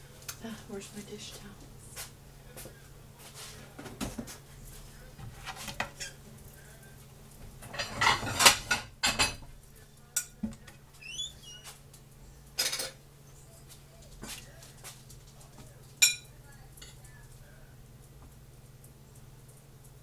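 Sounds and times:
dishes and cutlery clinking: 7.6 - 10.8, 12.6 - 13.0, 15.5 - 17.1
brief squeaky rising sounds: 11.0 - 11.8.

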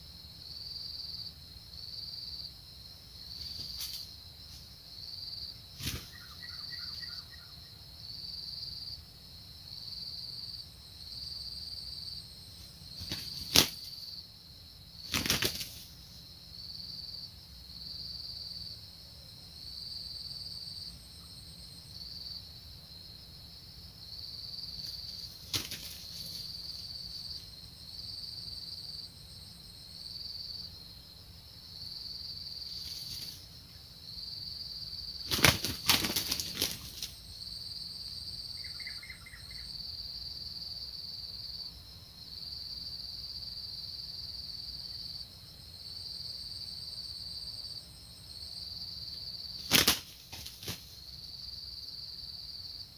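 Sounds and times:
high insect chirr: 0.0 - 52.9
roosters wings beating: 3.4 - 4.1, 5.8 - 6.4, 12.9 - 14.0, 15.0 - 15.9, 24.8 - 26.5, 32.8 - 33.4, 35.2 - 37.2, 49.6 - 51.0.

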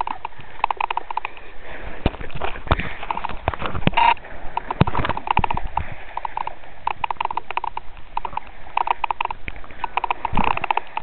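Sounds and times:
sea water splashing against hull: 0.0 - 11.0.

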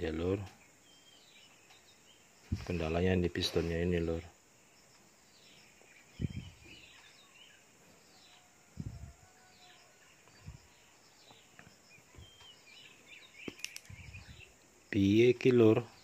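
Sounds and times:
faint bird chirps: 0.0 - 16.0.

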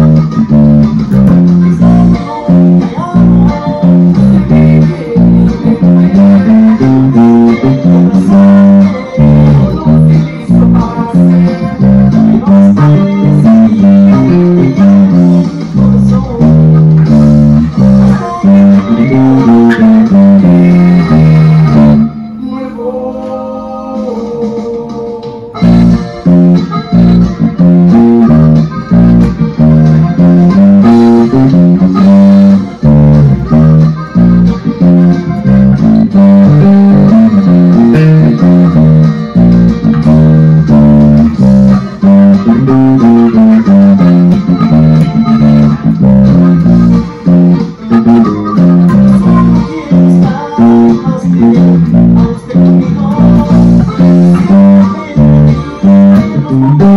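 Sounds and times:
full band music: 0.0 - 22.4, 23.2 - 56.9
electric bass guitar: 0.0 - 56.9.

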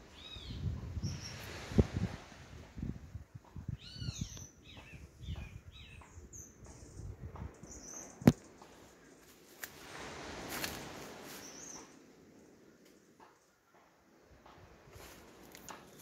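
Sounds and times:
footsteps through undergrowth: 8.6 - 11.8, 14.9 - 16.0.

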